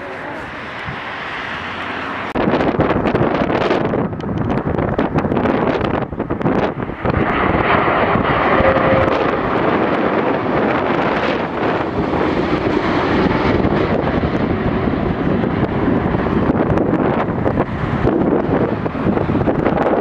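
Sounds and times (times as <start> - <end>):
jet airliner passing overhead: 0.0 - 20.0
wind buffeting microphone: 0.0 - 20.0.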